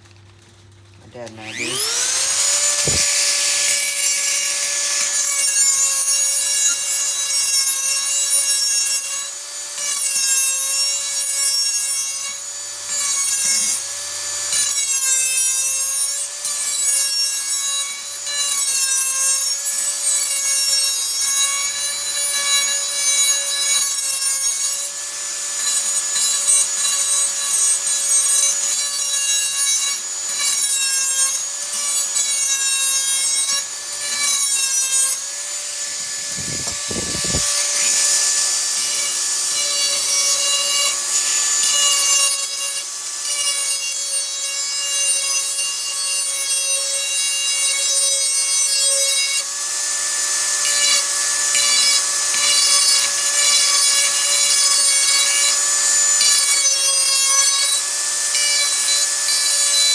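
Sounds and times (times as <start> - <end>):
electric grinder whining: 0.8 - 59.9
gritty grinding rasp on metal: 1.0 - 59.9.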